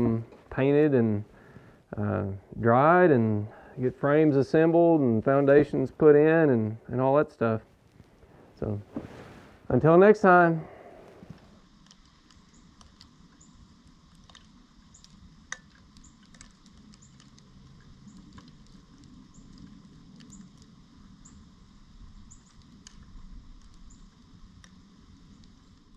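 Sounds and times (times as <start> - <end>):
low wind rumble: 0.0 - 11.8
high ticks and chirps: 11.6 - 25.9.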